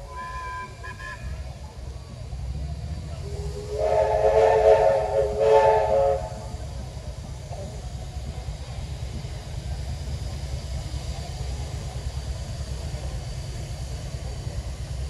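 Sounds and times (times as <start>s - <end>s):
steam locomotive whistle: 0.0s - 1.5s, 3.2s - 6.6s
steam hissing: 0.0s - 15.0s.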